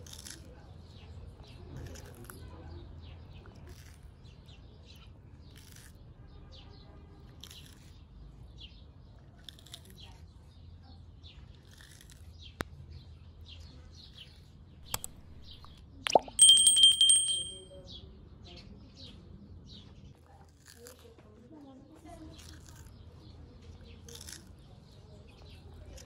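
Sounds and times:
tortoise crunching lettuce: 0.0 - 0.5, 1.8 - 2.4, 3.6 - 4.2, 5.5 - 6.0, 7.3 - 8.0, 9.4 - 10.2, 11.5 - 12.4, 20.5 - 21.1, 22.2 - 23.1, 23.9 - 25.5
birds chirping faintly: 14.8 - 17.6.

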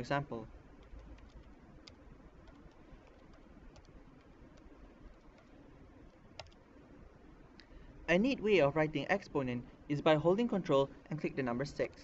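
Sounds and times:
low steady hum: 0.0 - 12.0
computer keyboard keystrokes: 0.8 - 6.6.

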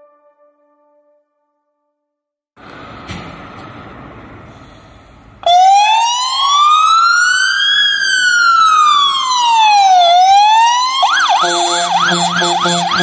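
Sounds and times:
siren wailing: 5.6 - 13.0.

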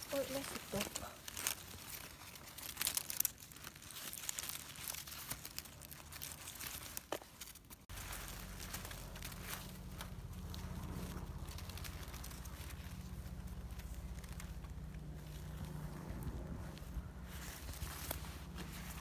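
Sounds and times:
dry leaves and twigs rustling: 0.0 - 19.0
steady low rumble: 7.8 - 19.0.

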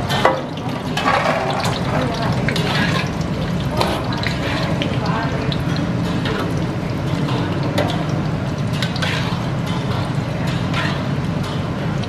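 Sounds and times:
chillies frying in oil: 0.0 - 12.0
gas burner low rumble: 0.0 - 12.0
metal spatula scraping wok: 8.8 - 11.2.

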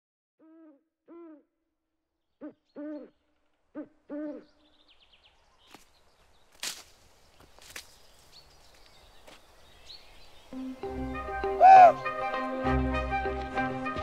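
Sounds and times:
owl hooting: 2.4 - 3.1, 3.7 - 4.5, 11.4 - 12.1.

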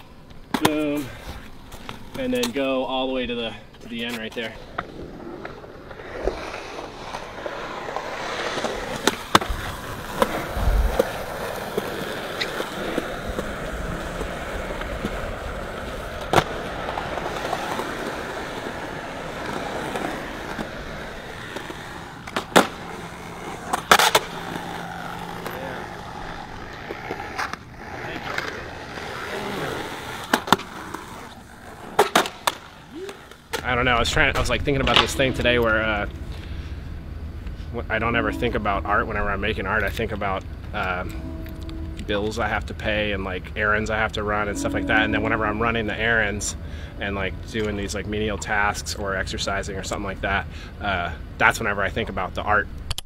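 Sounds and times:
skateboard wheels rolling on concrete: 0.0 - 53.0
skateboard clacking on ground: 3.8 - 36.2.

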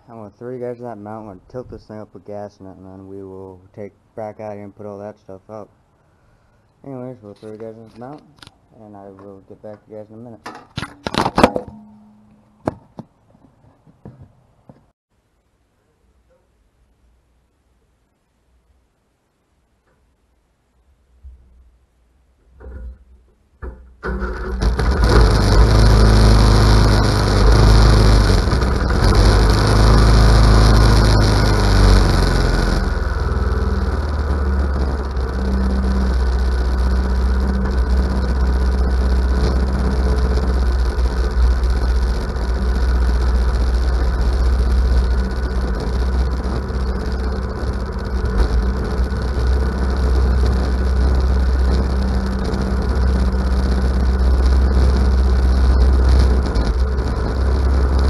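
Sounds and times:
riding mower engine running: 24.0 - 58.0.

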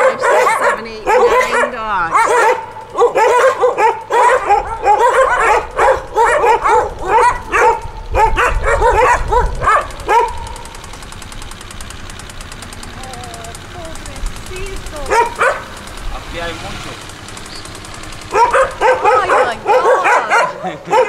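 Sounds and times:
dogs yapping: 0.0 - 21.0.

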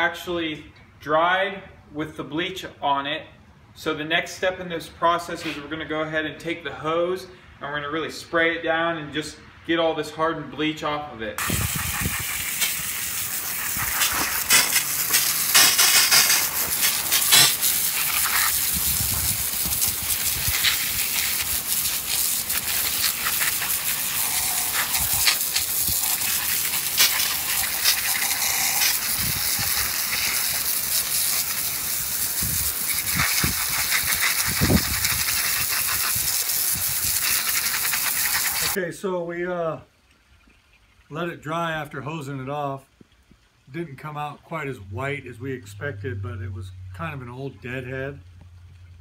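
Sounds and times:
hose nozzle spraying water: 11.4 - 38.8
water spattering onto gravel: 11.4 - 38.8.

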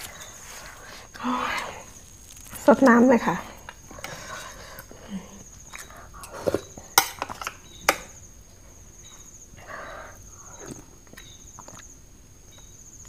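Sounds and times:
chewing food: 10.5 - 12.0
lip smacks and mouth clicks: 10.6 - 12.0.

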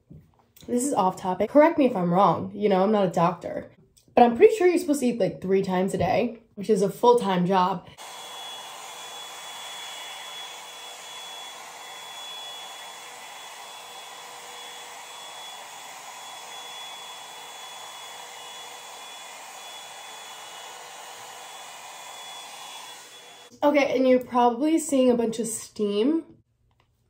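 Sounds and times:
hair dryer blowing: 7.1 - 23.6.

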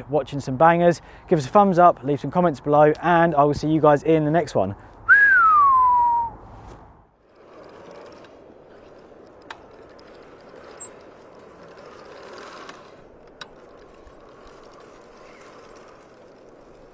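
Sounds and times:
bike tyre and drivetrain noise: 0.0 - 16.9
freewheel ticking: 7.3 - 16.9.

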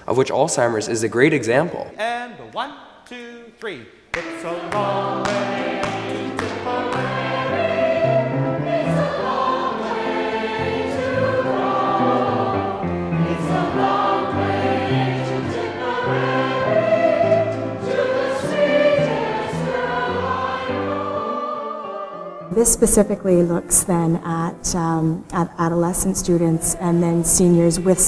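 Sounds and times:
mixed choir singing: 4.2 - 22.8, 26.2 - 28.0.

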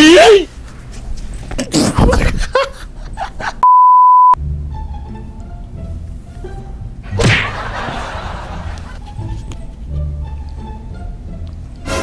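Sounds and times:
censor bleep: 3.6 - 4.4
light background music: 4.4 - 12.0.

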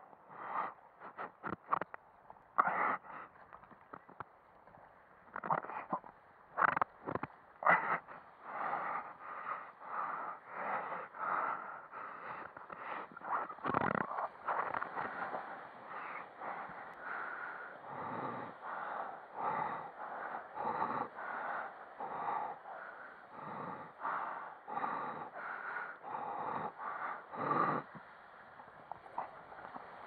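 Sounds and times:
paddle swishing water: 12.8 - 17.8, 27.9 - 30.0.

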